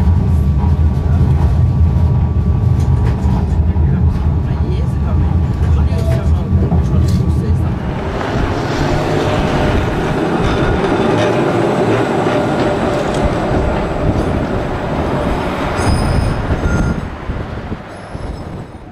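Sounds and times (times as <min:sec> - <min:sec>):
tram wheels rumbling on rails: 0:00.0 - 0:18.9
faint high wheel squeals: 0:15.8 - 0:17.1.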